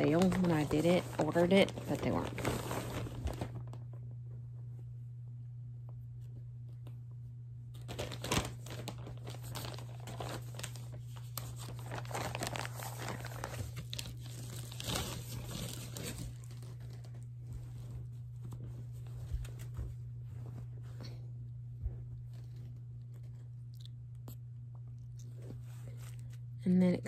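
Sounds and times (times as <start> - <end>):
packaging crinkling and tearing: 0.0 - 3.9, 7.7 - 17.2
steady low hum: 0.0 - 27.0.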